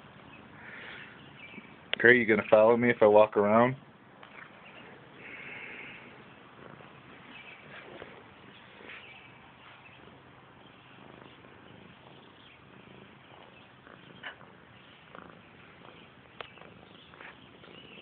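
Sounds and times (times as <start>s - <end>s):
cat purring: 0.0s - 18.0s.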